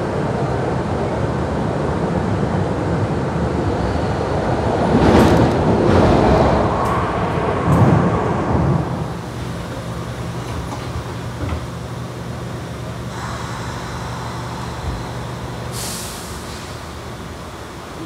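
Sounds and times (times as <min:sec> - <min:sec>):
train low rumble: 0:00.0 - 0:18.0
wheels clicking on rails: 0:08.9 - 0:18.0.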